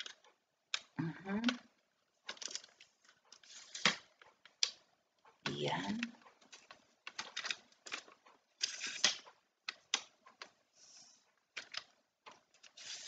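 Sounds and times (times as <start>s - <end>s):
tripod sections scraping: 12.6s - 13.0s.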